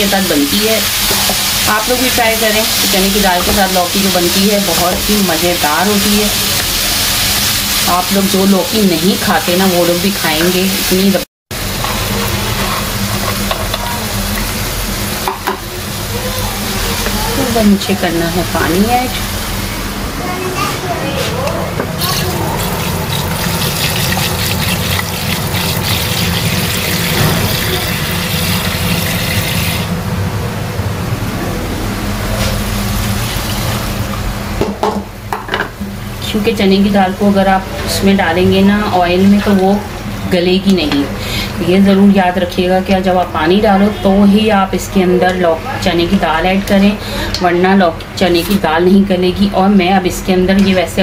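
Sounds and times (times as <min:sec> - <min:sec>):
vegetables sizzling in oil: 0:00.0 - 0:20.0, 0:22.0 - 0:30.0, 0:32.0 - 0:45.4
tap water running into tub: 0:22.0 - 0:29.9.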